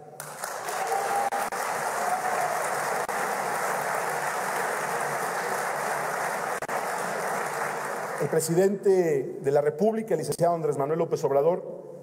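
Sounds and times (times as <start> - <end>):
large audience applauding: 0.1 - 8.7.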